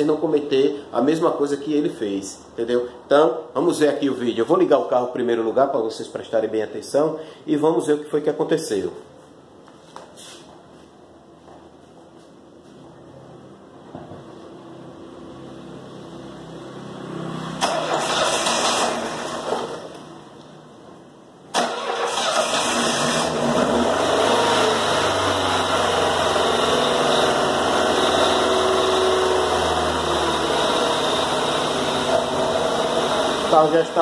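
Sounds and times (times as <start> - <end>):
car engine starting: 15.4 - 20.2, 21.5 - 34.0.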